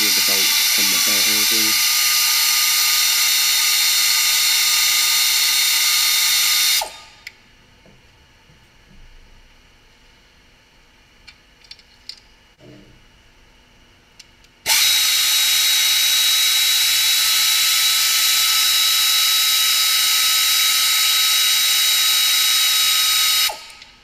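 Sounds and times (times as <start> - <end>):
power ratchet whining: 0.0 - 7.0, 14.7 - 23.8.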